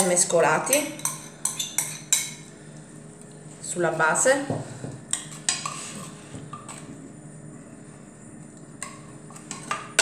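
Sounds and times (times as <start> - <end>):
metal spoon clinking on dish: 0.2 - 2.4
spoon scraping baking dish: 0.2 - 2.4, 5.1 - 6.9.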